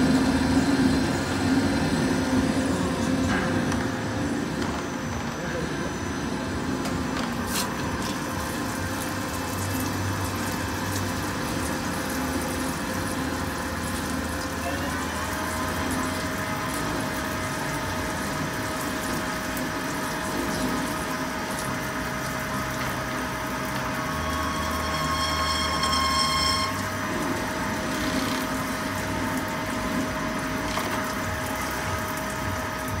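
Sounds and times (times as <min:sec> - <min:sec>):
high machine whine: 0:00.0 - 0:33.0
lathe machine hum: 0:00.0 - 0:33.0
coolant splashing: 0:07.3 - 0:24.9, 0:26.7 - 0:33.0.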